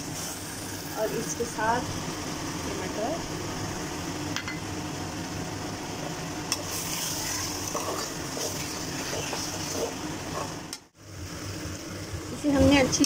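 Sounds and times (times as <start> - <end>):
food sizzling in a metal pot: 0.0 - 2.0, 6.5 - 11.8.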